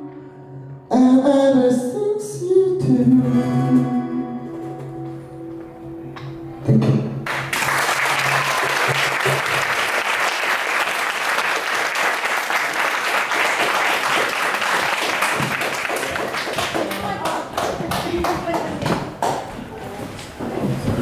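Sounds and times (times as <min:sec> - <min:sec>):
acoustic guitar and cajon chord: 0:02.8 - 0:07.5
audience applause: 0:07.3 - 0:18.7.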